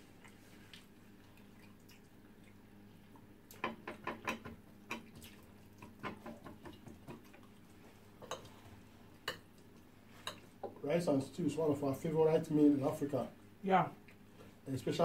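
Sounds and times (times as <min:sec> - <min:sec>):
mouth smacks and chewing: 0:00.2 - 0:02.6.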